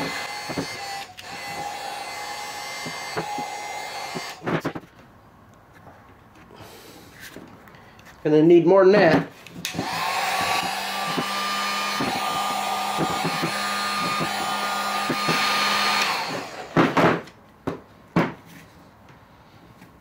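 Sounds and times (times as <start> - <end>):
heat gun blowing with high whine: 0.0 - 4.7, 9.6 - 17.1
sharp knocks: 9.0 - 15.5, 16.7 - 18.4.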